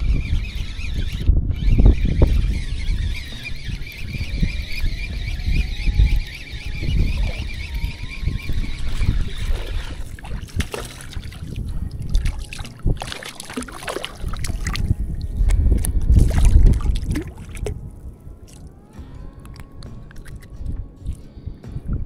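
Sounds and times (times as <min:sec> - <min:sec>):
water splashing and sloshing: 0:06.3 - 0:21.2
fish thrashing at surface: 0:08.6 - 0:15.3, 0:16.1 - 0:17.8
heavy low rumble: 0:14.2 - 0:22.0.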